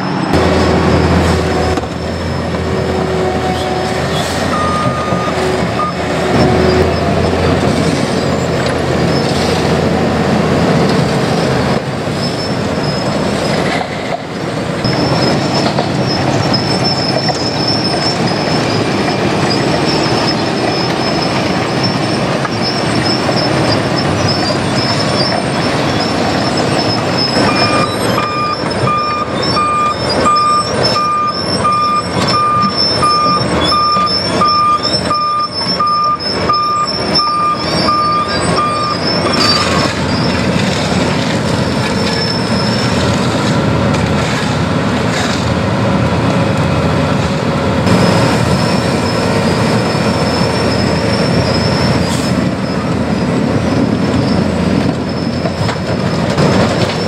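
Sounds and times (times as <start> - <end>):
backup alarm beeping: 4.5 - 6.8, 27.4 - 39.1
milling machine grinding asphalt: 14.8 - 51.6.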